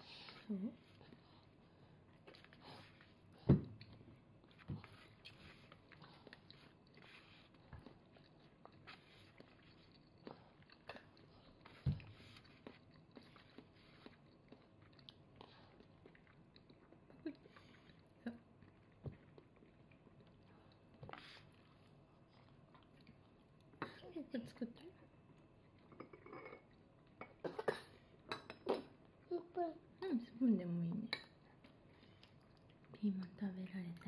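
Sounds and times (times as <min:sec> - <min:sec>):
toddler chewing: 0:00.2 - 0:23.9.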